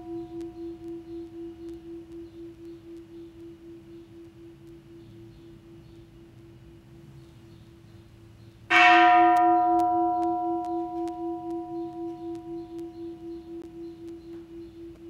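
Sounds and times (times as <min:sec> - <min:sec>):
steady low tone: 0:00.0 - 0:15.0
temple bell ringing: 0:08.7 - 0:14.6.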